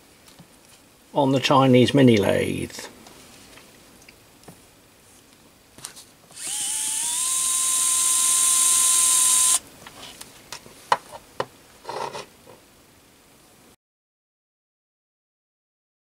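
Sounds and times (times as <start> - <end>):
electric screwdriver motor whining: 6.4 - 9.6.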